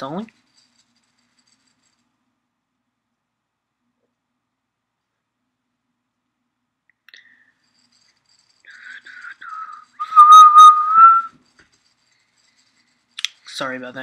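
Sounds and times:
person whistling: 9.2 - 11.3.

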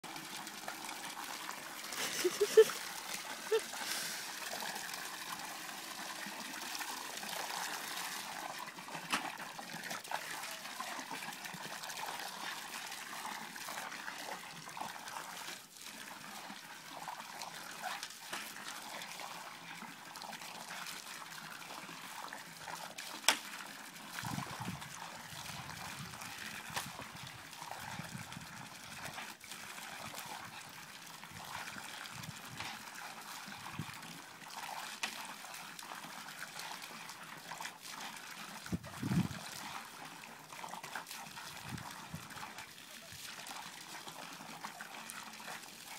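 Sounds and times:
hose spray splashing into water: 0.9 - 14.0.

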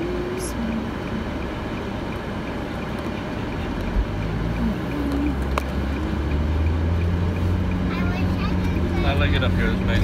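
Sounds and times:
vehicle interior rumble: 0.0 - 10.0.

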